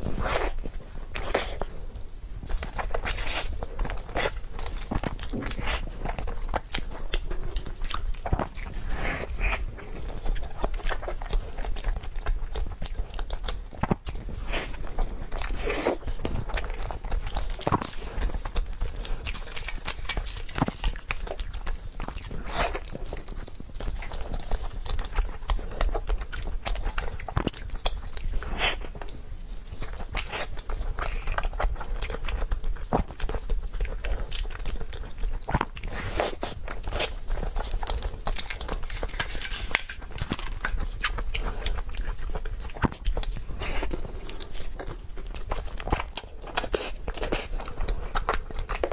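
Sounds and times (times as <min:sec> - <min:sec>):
wet chewing and smacking: 0:00.0 - 0:48.9.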